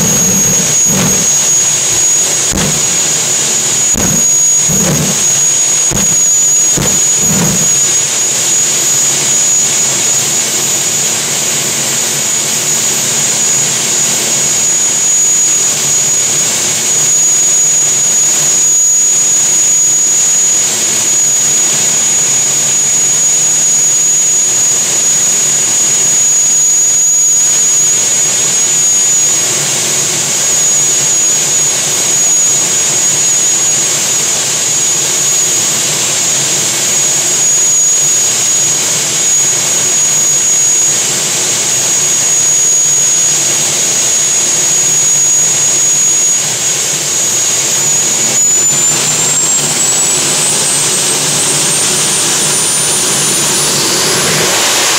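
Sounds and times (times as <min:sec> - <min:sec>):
rushing noise: 0:00.0 - 0:08.2, 0:48.3 - 0:54.9
turbine engine whine: 0:00.0 - 0:54.9.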